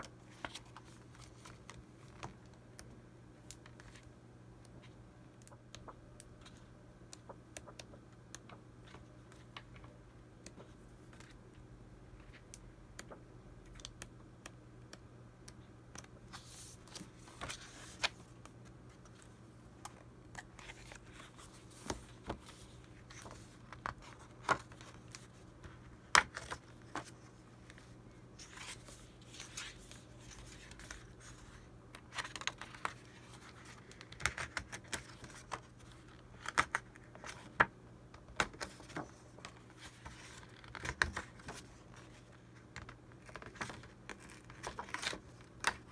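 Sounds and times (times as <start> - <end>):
paper rustling and crinkling: 38.4 - 45.9.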